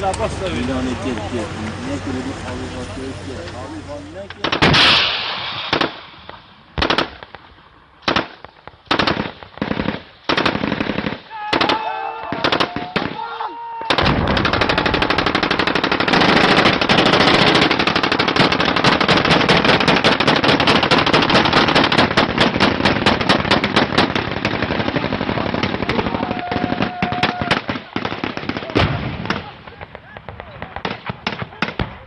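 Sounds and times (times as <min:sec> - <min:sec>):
automatic gunfire: 0:04.4 - 0:06.0, 0:06.8 - 0:07.4, 0:08.0 - 0:13.2, 0:13.9 - 0:31.9.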